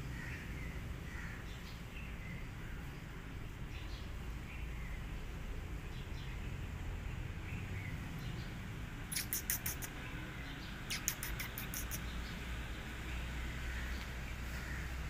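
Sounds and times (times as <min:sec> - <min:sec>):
small bird chirping: 0:07.5 - 0:13.3.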